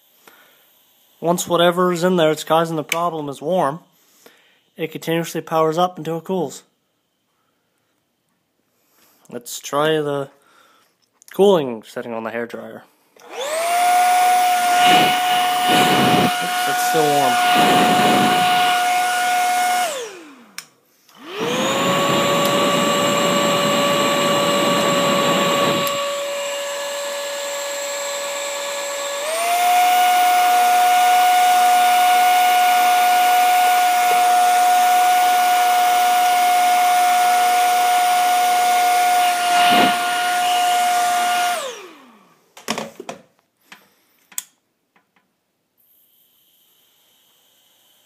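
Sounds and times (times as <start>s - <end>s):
hair dryer motor whine: 13.2s - 42.4s, 45.9s - 48.0s.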